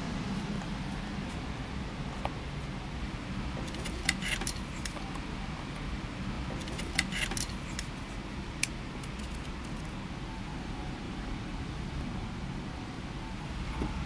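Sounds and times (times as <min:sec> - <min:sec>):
low background rumble: 0:00.0 - 0:14.0.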